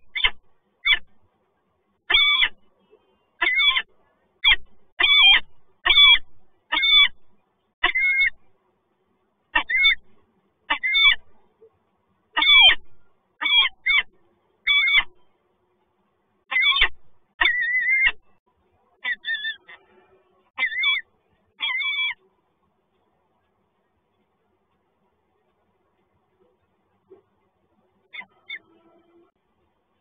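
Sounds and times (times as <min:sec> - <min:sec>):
falcon calling: 0:03.4 - 0:07.2, 0:07.8 - 0:08.4, 0:09.6 - 0:10.1, 0:10.7 - 0:11.3, 0:12.4 - 0:14.1, 0:14.7 - 0:15.2, 0:16.5 - 0:18.3, 0:20.6 - 0:22.2.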